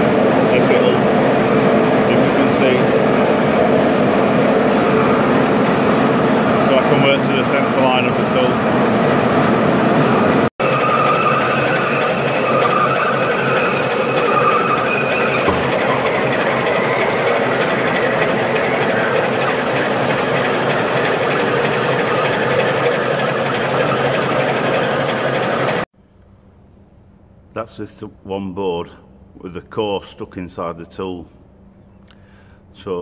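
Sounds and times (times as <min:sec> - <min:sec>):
lathe machining metal: 0:10.6 - 0:25.9.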